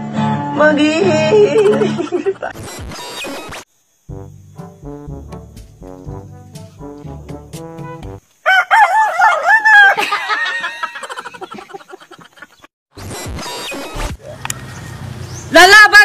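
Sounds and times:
music: 0:00.0 - 0:08.2
rooster crowing: 0:08.4 - 0:11.7, 0:14.4 - 0:15.2.

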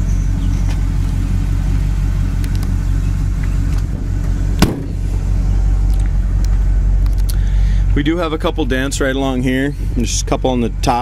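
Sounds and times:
steady low hum: 0:00.0 - 0:11.0
car door slamming: 0:04.6 - 0:05.3.

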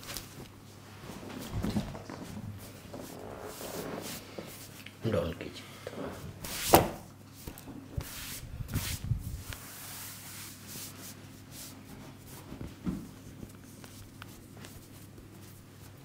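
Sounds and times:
hands rubbing skin and hair: 0:02.2 - 0:05.0, 0:07.4 - 0:16.0.

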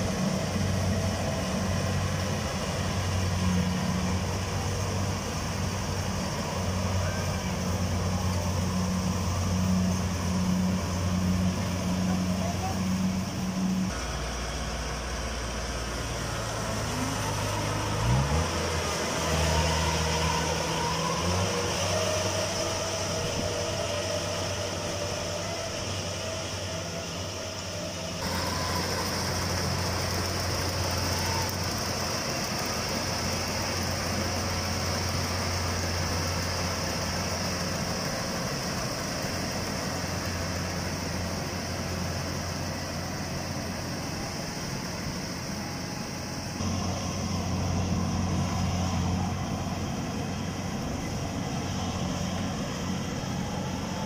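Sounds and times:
harvester engine drone: 0:00.0 - 0:54.0
high hiss: 0:00.0 - 0:54.0.

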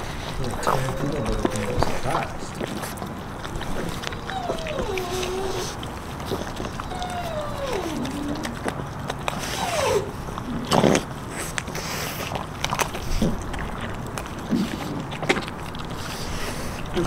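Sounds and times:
bones cracking: 0:00.0 - 0:09.6, 0:10.2 - 0:17.0
puppies chewing and crunching: 0:00.0 - 0:17.0.

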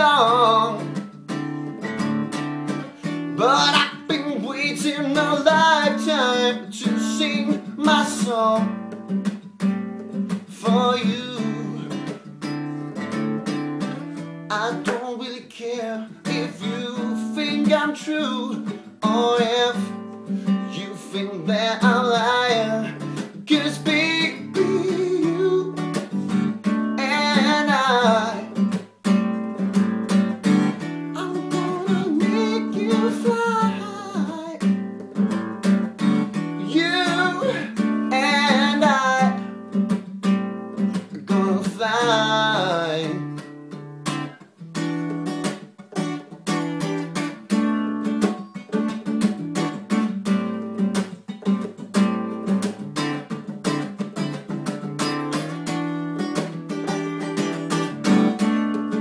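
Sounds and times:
man singing: 0:00.0 - 0:01.1, 0:03.0 - 0:09.0, 0:10.4 - 0:12.3, 0:14.5 - 0:28.8, 0:31.1 - 0:35.5, 0:36.2 - 0:39.6, 0:40.8 - 0:43.5
acoustic guitar strumming: 0:00.0 - 0:59.0.

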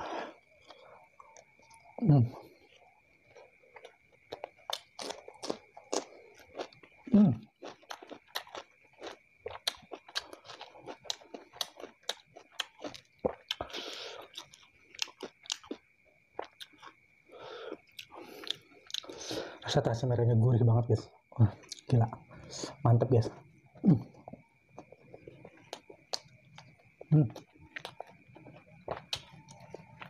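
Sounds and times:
crunchy chewing: 0:00.0 - 0:19.6, 0:23.2 - 0:30.0
wet clicking mouth sounds: 0:25.6 - 0:26.7.

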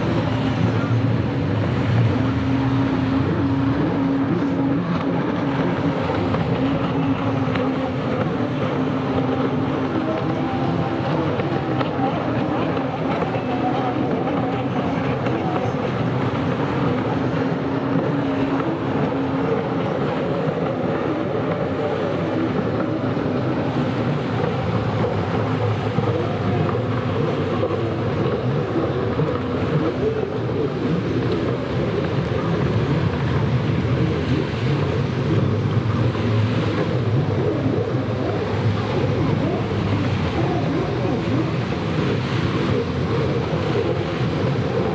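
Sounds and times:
distant jet ski engines racing: 0:00.0 - 0:44.9
hiss of water and wind: 0:00.0 - 0:44.9.

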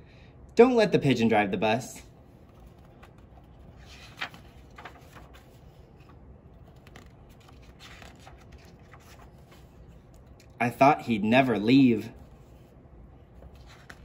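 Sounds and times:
book pages turning: 0:02.3 - 0:10.6, 0:12.2 - 0:14.0.

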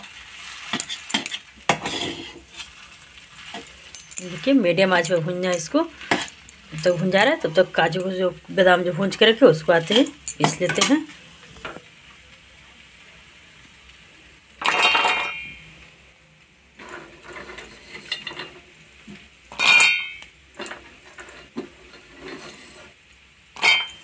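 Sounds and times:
nuts clattering into metal jar: 0:03.6 - 0:07.0
light metal clinks: 0:03.9 - 0:07.0.

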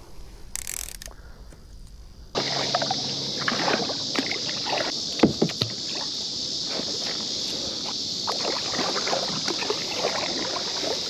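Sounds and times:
steady high hiss: 0:00.0 - 0:11.0
paddle splashing in water: 0:02.4 - 0:11.0
paddle knocks: 0:05.2 - 0:05.8.

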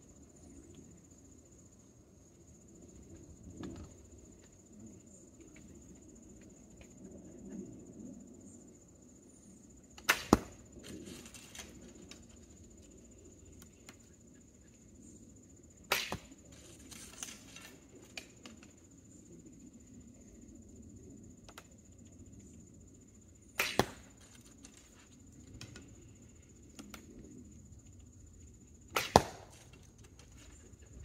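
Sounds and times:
arrow knocking: 0:10.0 - 0:10.6, 0:15.9 - 0:16.3, 0:23.6 - 0:24.1, 0:28.9 - 0:29.7
arrows being nocked: 0:15.9 - 0:16.3
bowstring snap: 0:15.9 - 0:16.3, 0:23.6 - 0:24.0.

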